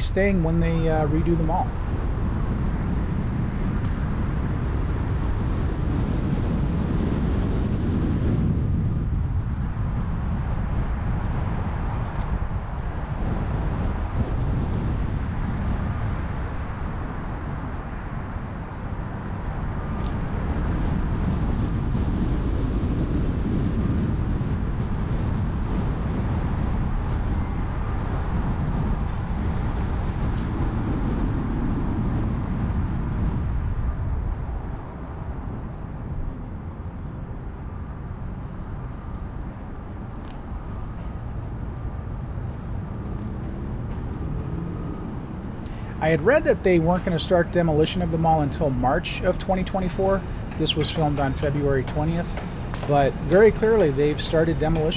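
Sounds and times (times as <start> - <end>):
car driving slowly: 40.2 - 54.9.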